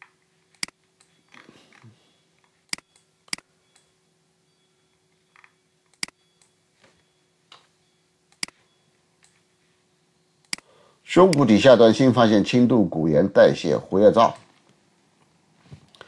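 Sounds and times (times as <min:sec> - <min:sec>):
low electrical hum: 0:00.0 - 0:16.0
computer mouse clicks: 0:05.4 - 0:06.6, 0:08.3 - 0:08.6.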